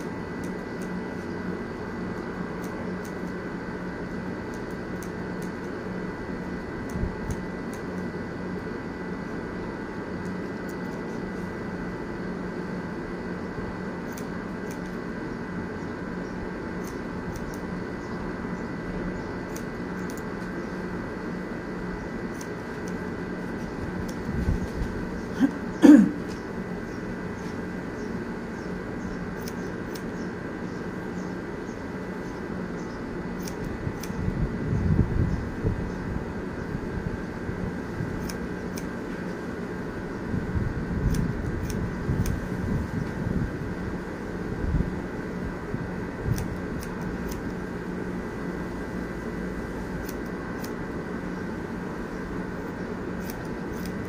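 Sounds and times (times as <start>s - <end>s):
scissors snipping hair: 0.0s - 1.3s, 2.1s - 3.4s, 4.0s - 5.8s, 6.5s - 8.1s, 10.2s - 11.4s, 14.0s - 15.1s, 16.8s - 17.8s, 19.4s - 20.6s, 22.1s - 26.5s, 29.0s - 30.4s, 33.3s - 34.2s, 38.1s - 39.4s, 41.0s - 42.5s, 46.3s - 47.7s, 49.9s - 51.0s, 52.7s - 54.0s
steady mechanical hum: 0.0s - 54.0s.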